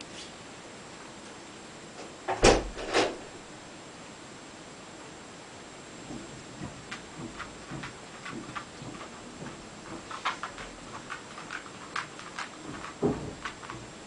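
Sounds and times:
dull thump: 0:02.3 - 0:03.2, 0:12.6 - 0:13.9
dog claws clicking on hard floor: 0:06.6 - 0:14.0.

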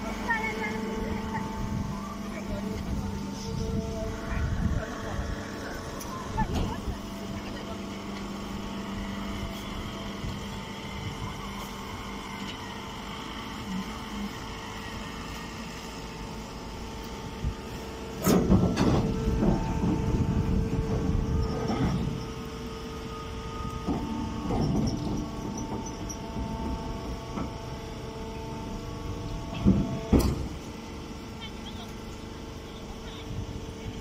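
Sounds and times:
baler motor and pump humming: 0:00.0 - 0:34.0
irregular rumbling and knocks: 0:18.1 - 0:22.7, 0:23.3 - 0:31.1.

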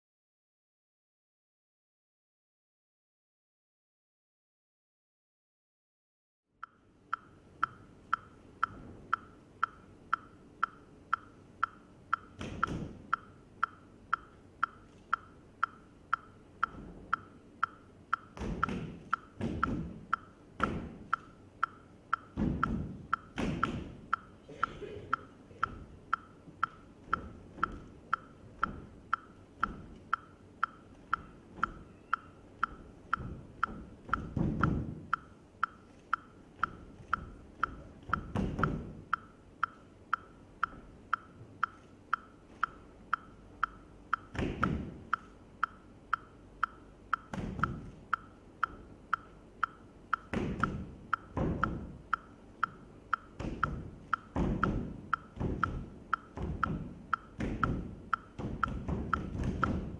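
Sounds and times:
steady wooden click: 0:06.6 - 0:59.9
bare feet thudding on stage: 0:22.4 - 0:24.0.

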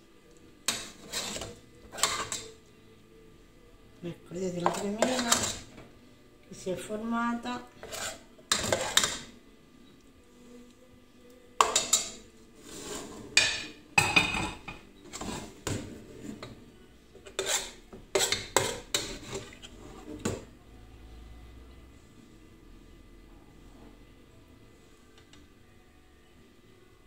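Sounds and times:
metal ladle scraping cooking pot: 0:00.6 - 0:02.6, 0:04.6 - 0:05.7, 0:07.7 - 0:09.3, 0:11.6 - 0:13.8, 0:15.0 - 0:16.6, 0:17.2 - 0:20.4.

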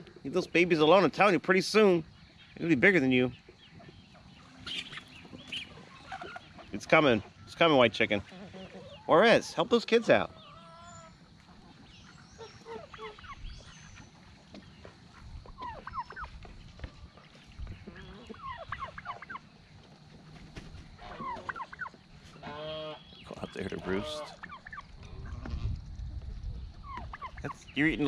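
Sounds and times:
chickens chirping and clucking: 0:00.0 - 0:28.0
turkey gobbling: 0:03.4 - 0:16.5, 0:17.7 - 0:19.6, 0:20.6 - 0:25.6, 0:26.7 - 0:28.0.

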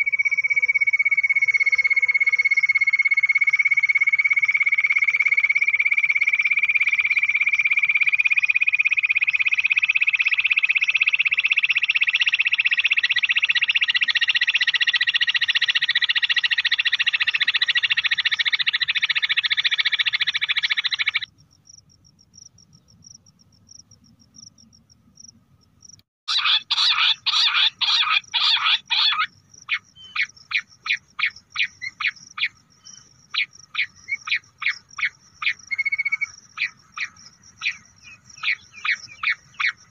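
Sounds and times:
quail trilling chorus: 0:26.3 - 0:39.9
rapid quail call notes: 0:26.3 - 0:39.9.

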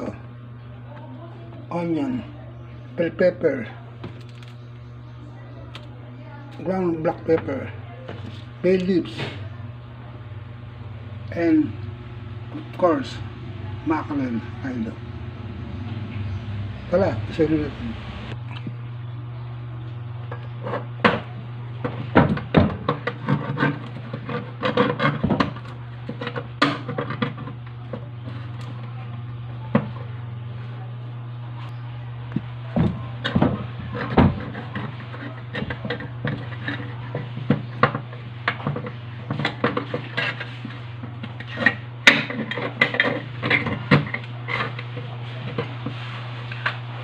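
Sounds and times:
low hum: 0:03.7 - 0:20.5.

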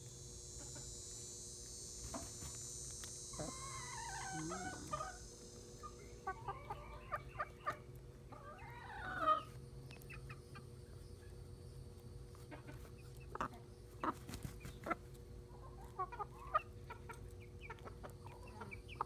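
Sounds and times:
beaks pecking on ground: 0:00.0 - 0:19.0
hens clucking: 0:03.4 - 0:11.4, 0:12.3 - 0:19.0.

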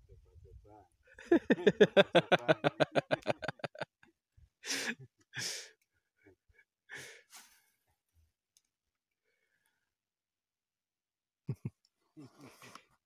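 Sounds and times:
man laughing: 0:01.2 - 0:03.9, 0:11.5 - 0:12.6.

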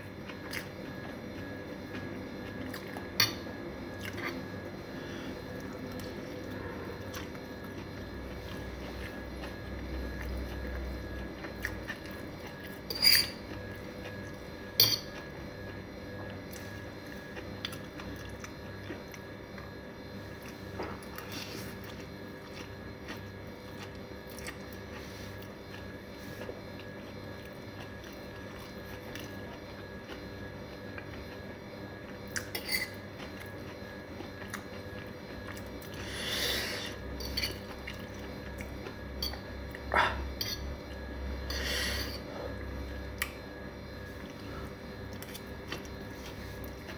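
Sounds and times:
steady low hum: 0:00.0 - 0:46.9
soft chewing: 0:00.1 - 0:03.2, 0:03.8 - 0:41.1, 0:42.5 - 0:46.9
fork clinking and scraping on plate: 0:12.9 - 0:13.4, 0:32.5 - 0:33.0, 0:37.2 - 0:37.6.

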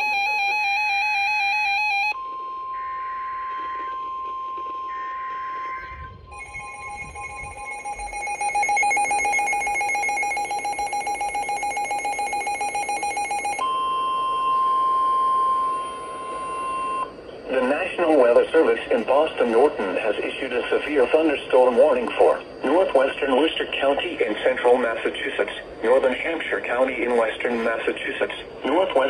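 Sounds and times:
receiver alarm beeping rapidly: 0:00.0 - 0:24.9
steady warning alarm tone: 0:00.0 - 0:29.0
bursts of data header tones: 0:01.0 - 0:13.6, 0:15.9 - 0:29.0
stepped electronic warble: 0:02.7 - 0:11.5.

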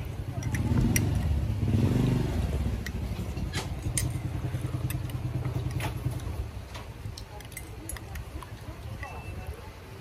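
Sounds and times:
vehicle engine humming: 0:00.0 - 0:10.0
metal spoon clinking on glass mug: 0:00.3 - 0:01.3.

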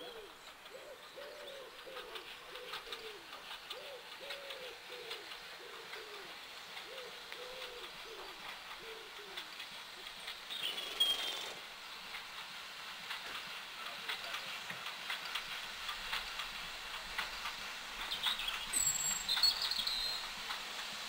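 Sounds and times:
faint train clicks and knocks: 0:00.0 - 0:21.0
bird whistling: 0:18.7 - 0:20.2.

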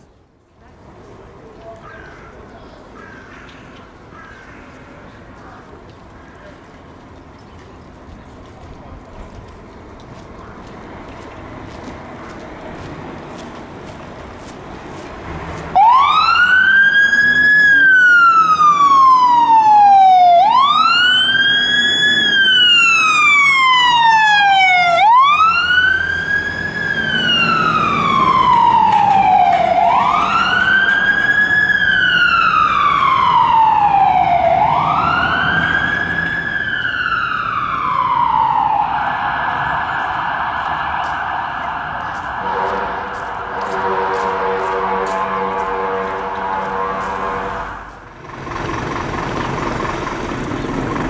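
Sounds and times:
fire engine siren wailing: 0:15.7 - 0:51.0.

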